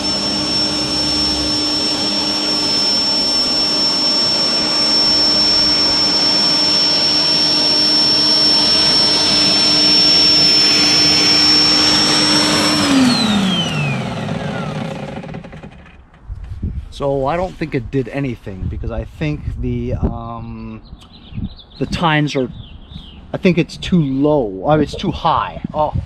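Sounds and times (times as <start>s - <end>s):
electric dethatcher whining: 0.0s - 16.1s
motor winding down: 0.0s - 16.2s.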